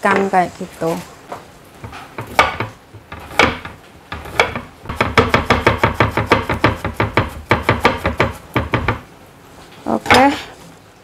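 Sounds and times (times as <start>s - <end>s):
knife chopping on cutting board: 1.8s - 9.0s.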